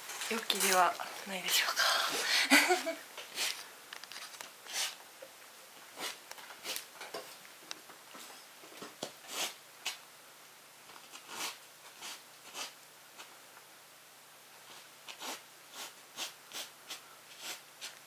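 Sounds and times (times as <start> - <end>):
soft scratching strokes: 14.6 - 18.0.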